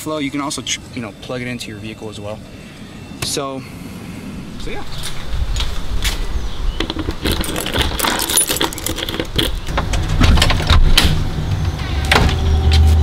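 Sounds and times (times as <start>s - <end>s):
keys jangling: 6.9s - 9.7s.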